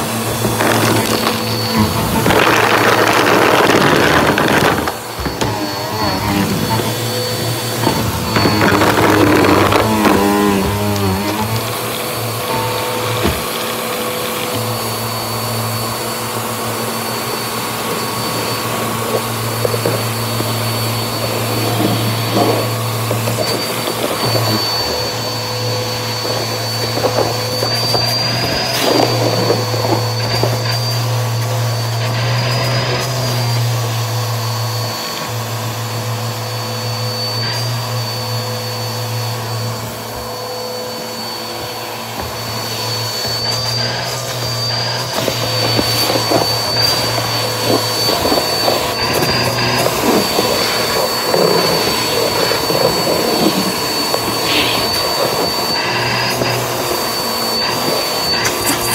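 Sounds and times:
debris crackling through hose: 0:00.0 - 0:13.5, 0:18.0 - 0:31.6, 0:43.2 - 0:58.9
vacuum cleaner whining: 0:00.0 - 0:58.9.

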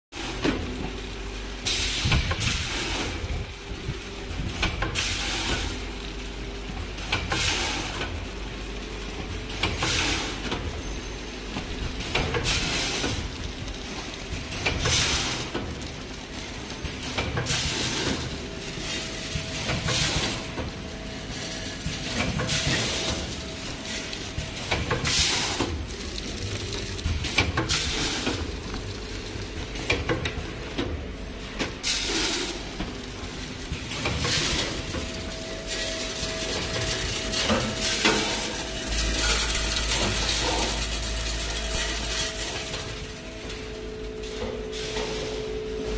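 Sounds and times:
seeds rattling down a chute: 0:22.7 - 0:29.5, 0:34.2 - 0:43.2.

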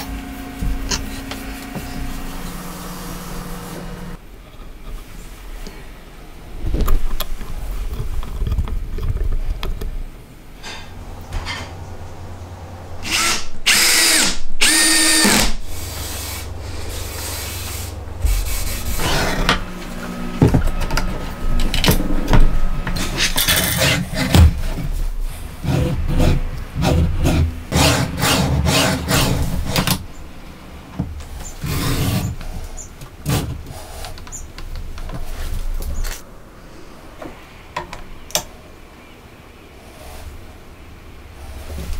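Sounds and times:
low hum: 0:00.0 - 0:31.8.

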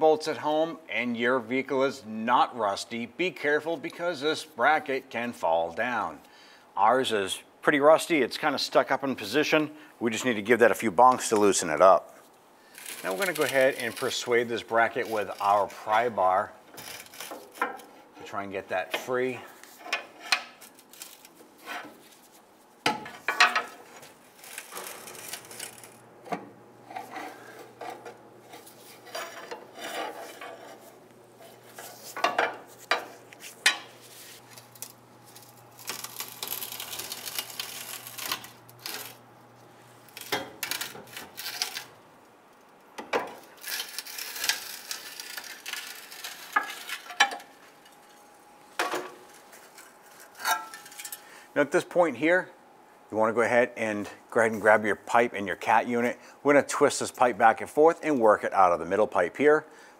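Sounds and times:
metal scraping: 0:23.0 - 0:39.2.

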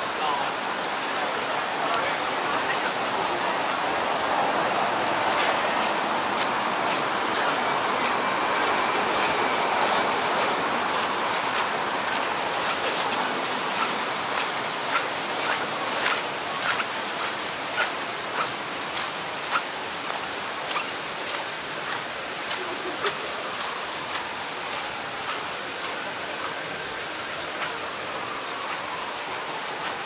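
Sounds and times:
ocean surf rushing: 0:00.0 - 0:26.0.

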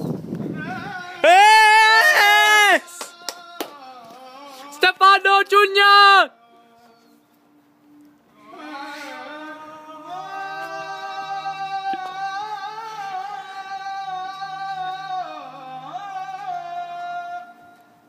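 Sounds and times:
music: 0:03.0 - 0:05.0, 0:06.3 - 0:18.0
person singing long notes: 0:08.3 - 0:18.0.

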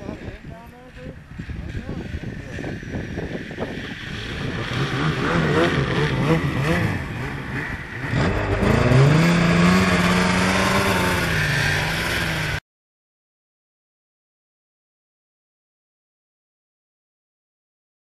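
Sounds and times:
snowmobile engine revving: 0:00.9 - 0:12.6.

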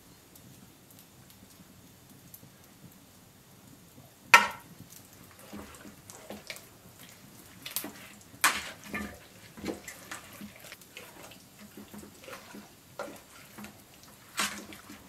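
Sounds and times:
wet sticky handling of meat: 0:05.0 - 0:15.0.

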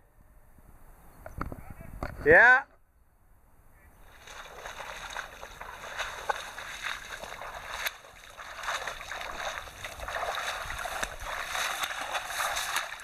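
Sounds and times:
footsteps on trail: 0:04.0 - 0:13.0
shrubs rustling and swishing: 0:04.0 - 0:13.0.

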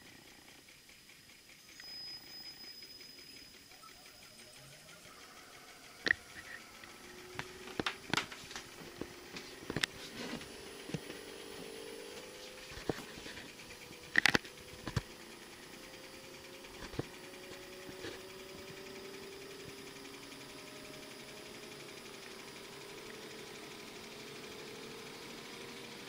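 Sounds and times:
air conditioner compressor hum: 0:00.0 - 0:26.0
sharp clicks and taps: 0:06.0 - 0:11.2, 0:12.1 - 0:15.1.

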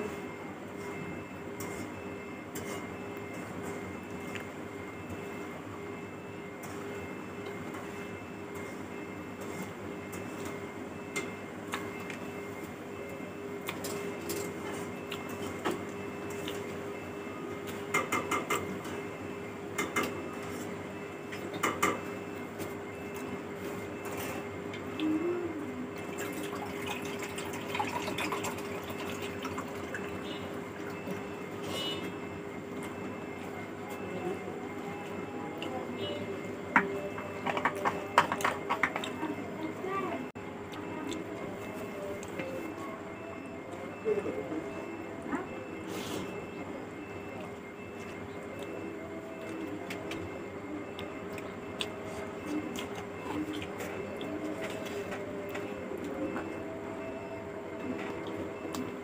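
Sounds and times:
steady background hum: 0:00.0 - 0:59.0
mouth clicks and chewing: 0:16.3 - 0:16.7, 0:50.9 - 0:54.9.

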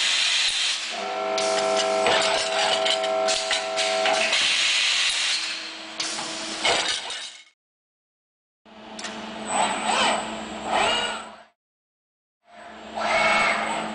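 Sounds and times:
robotic welding cell running: 0:00.0 - 0:07.0, 0:08.7 - 0:11.5.

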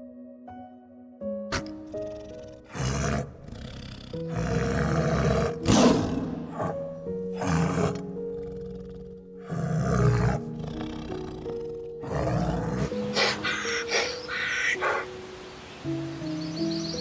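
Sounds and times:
soft background music: 0:00.0 - 0:17.0
tiger growling and roaring: 0:01.5 - 0:15.1.

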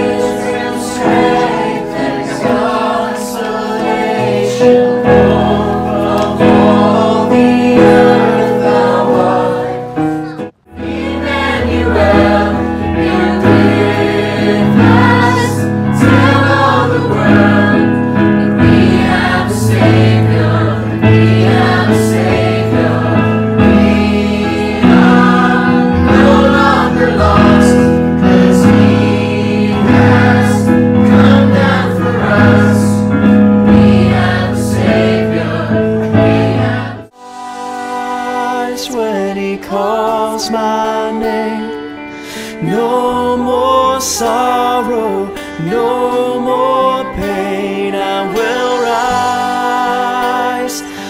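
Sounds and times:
choir singing: 0:00.0 - 0:42.0, 0:42.6 - 0:51.0.

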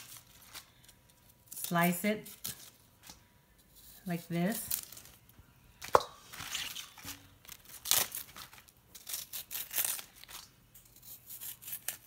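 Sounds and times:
knife cutting crunchy stems: 0:06.6 - 0:12.0.

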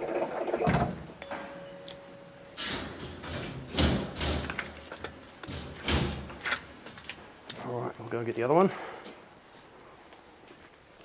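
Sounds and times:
metal parts clunking in wire basket: 0:02.6 - 0:06.7.

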